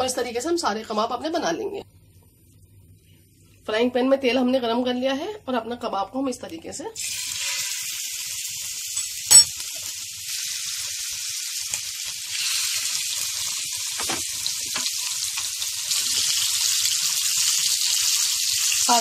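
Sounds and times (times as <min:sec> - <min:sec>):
kebabs sizzling in oil: 0:07.0 - 0:19.0.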